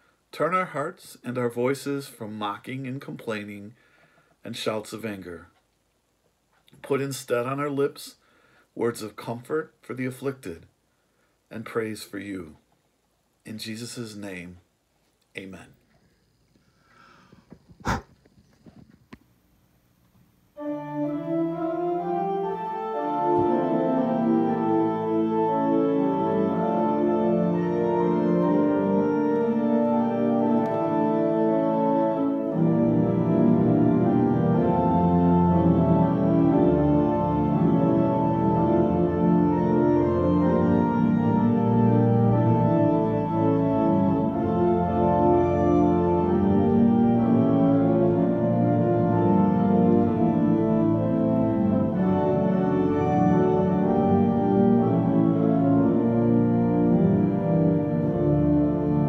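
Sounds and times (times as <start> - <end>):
deep organ bass notes: 20.5 - 59.0
organ playing held chords: 20.5 - 59.0.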